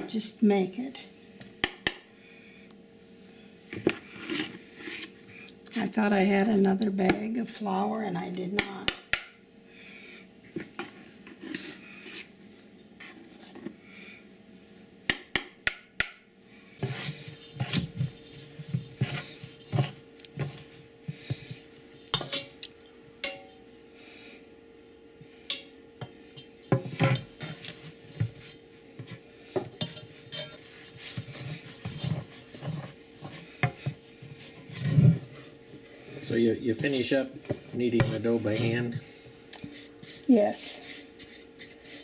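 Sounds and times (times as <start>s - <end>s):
metal spoon scraping a bowl: 16.8s - 20.6s, 21.9s - 23.6s, 26.3s - 28.6s, 29.7s - 34.0s.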